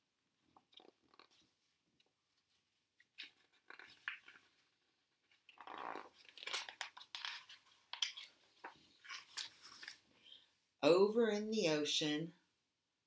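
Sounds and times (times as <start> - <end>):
book pages rustling: 2.3 - 10.4.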